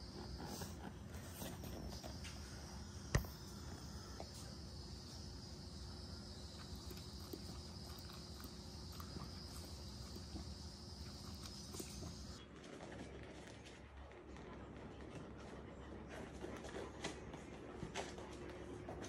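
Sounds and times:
faint high-pitched whine: 0:00.0 - 0:12.4.

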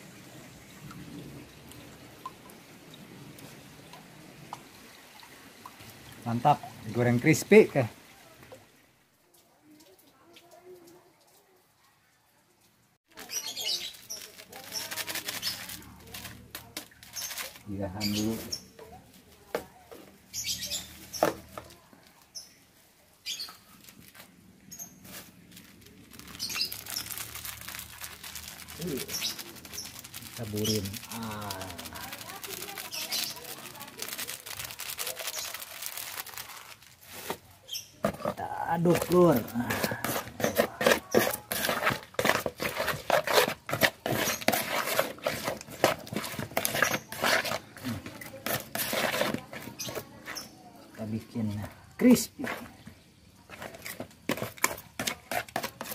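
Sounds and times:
plastic bags rustling: 0:13.1 - 0:18.6, 0:23.7 - 0:50.4
wet fish scraping and squelching: 0:13.2 - 0:19.2, 0:23.5 - 0:50.8, 0:52.1 - 0:55.9.

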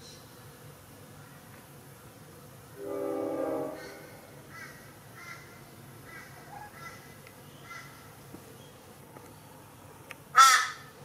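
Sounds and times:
crow calling faintly: 0:03.4 - 0:08.1, 0:10.3 - 0:10.9.

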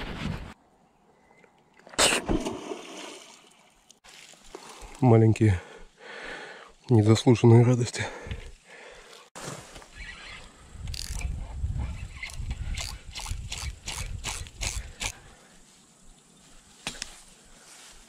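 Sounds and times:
fishing reel clicking: 0:10.9 - 0:11.3.

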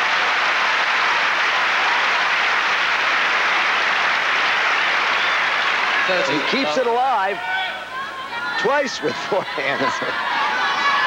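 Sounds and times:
crowd applauding: 0:00.0 - 0:07.2.

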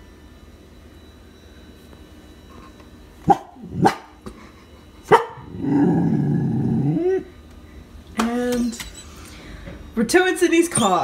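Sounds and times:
dog barking: 0:03.3 - 0:04.2, 0:05.1 - 0:05.5.

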